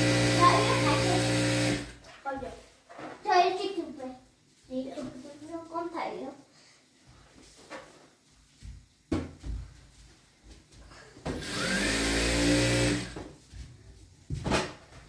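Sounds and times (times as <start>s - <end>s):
small electric motor whining: 0.0s - 2.0s, 11.4s - 13.2s.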